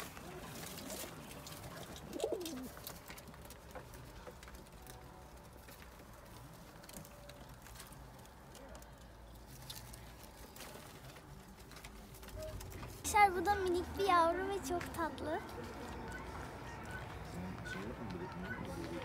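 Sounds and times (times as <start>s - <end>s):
pigeons cooing: 0.5s - 3.0s.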